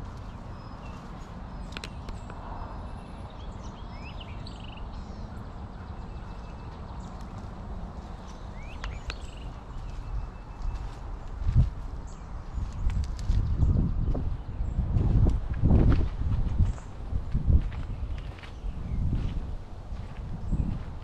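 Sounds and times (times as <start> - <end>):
footsteps on dirt and grass: 0.0 - 2.0, 6.6 - 21.0
low rumble on microphone: 0.0 - 21.0
bird chirps: 0.1 - 7.3, 8.2 - 11.1.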